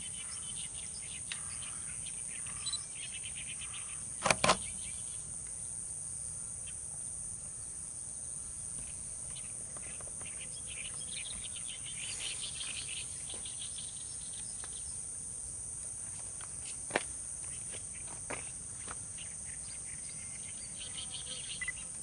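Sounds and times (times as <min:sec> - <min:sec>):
insects trilling: 0:00.0 - 0:22.0.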